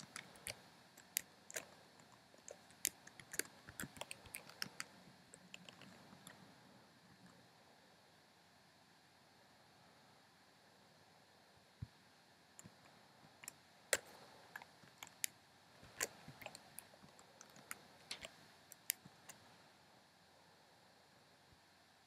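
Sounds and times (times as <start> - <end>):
computer keyboard typing: 0.0 - 6.4.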